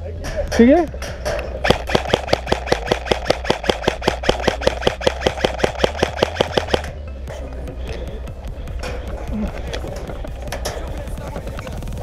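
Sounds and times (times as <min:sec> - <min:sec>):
airsoft gun shots: 0:01.6 - 0:07.0.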